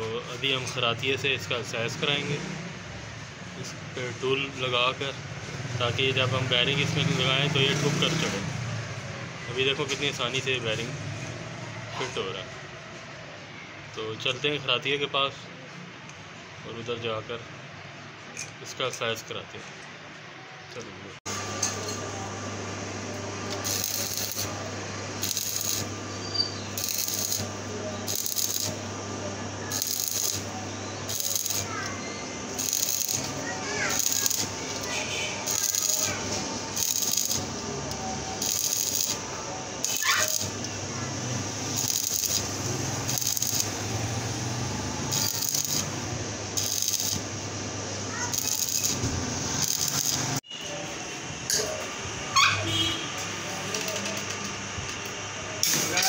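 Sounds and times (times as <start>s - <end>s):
steady low hum: 21.3s - 48.3s
welding arc crackling: 21.3s - 50.4s.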